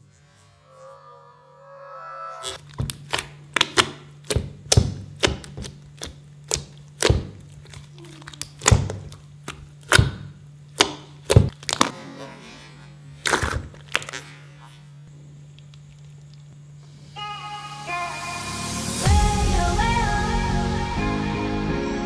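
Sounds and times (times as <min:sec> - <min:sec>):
steady low hum: 0:00.0 - 0:22.0
slime squelching and popping: 0:02.4 - 0:11.9, 0:13.2 - 0:14.2.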